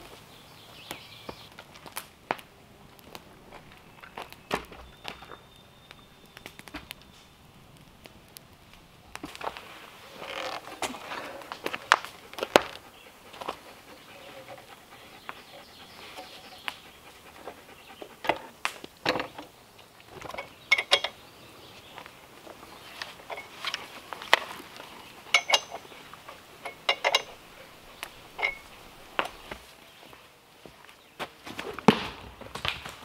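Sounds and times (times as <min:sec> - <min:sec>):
dog panting: 0:11.2 - 0:18.6
metal clicks and knocks: 0:20.2 - 0:21.2, 0:25.3 - 0:25.9, 0:26.6 - 0:27.4.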